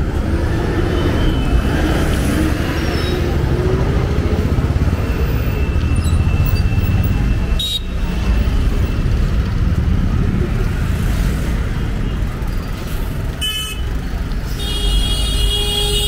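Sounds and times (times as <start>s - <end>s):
traffic engines rumbling: 0.0s - 16.0s
car horn: 7.6s - 7.9s, 14.5s - 16.0s.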